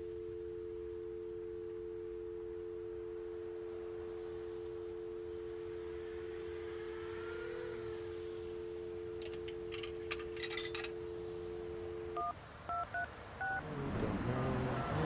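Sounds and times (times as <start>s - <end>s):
payphone dial tone: 0.0s - 13.6s
keypad touch-tones: 9.0s - 13.6s.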